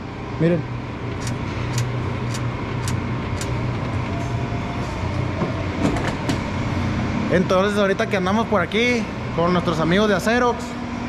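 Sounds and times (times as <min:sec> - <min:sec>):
low motor hum: 0:00.0 - 0:11.0
sharp clicks: 0:01.2 - 0:03.9.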